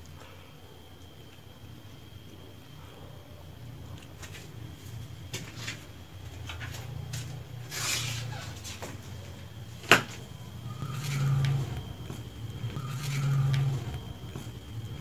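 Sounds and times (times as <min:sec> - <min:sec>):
low hum: 0:00.0 - 0:15.0
scuffs clicks and rustles: 0:04.0 - 0:15.0.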